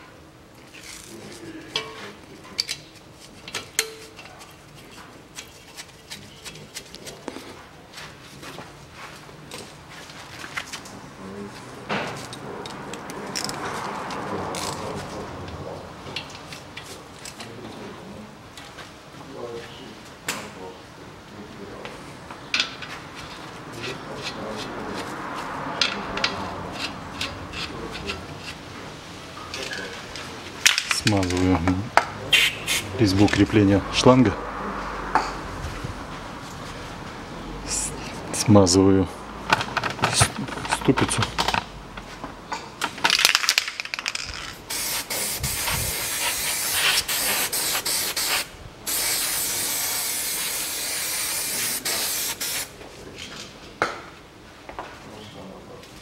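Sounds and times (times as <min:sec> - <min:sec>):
small metal parts clicking: 0:42.8 - 0:44.6.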